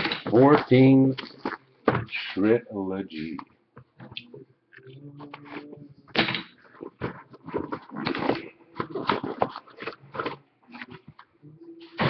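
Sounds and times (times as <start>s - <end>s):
plastic and cardboard tearing: 6.8s - 11.0s.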